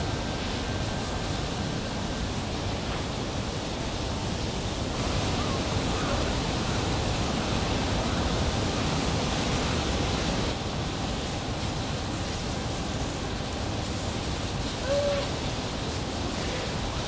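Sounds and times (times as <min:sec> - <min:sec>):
steady rushing outdoor noise: 0:00.0 - 0:17.0
baby monkey high call: 0:14.8 - 0:15.3.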